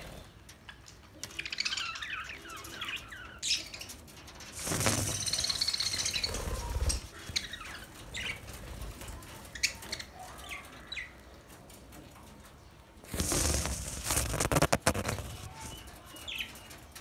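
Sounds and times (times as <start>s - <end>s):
wings flapping: 4.5s - 10.0s, 13.1s - 16.0s.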